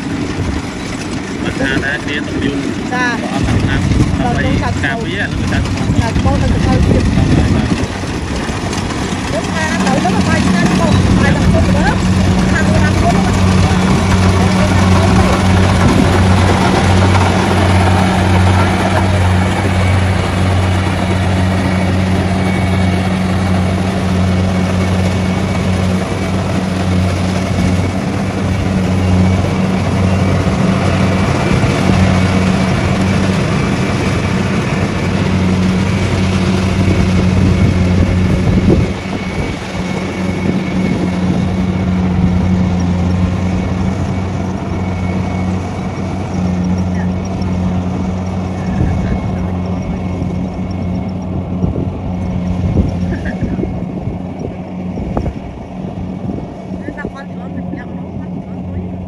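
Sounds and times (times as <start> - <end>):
engine hum: 0.0 - 59.0
machinery clatter and rattle: 0.0 - 59.0.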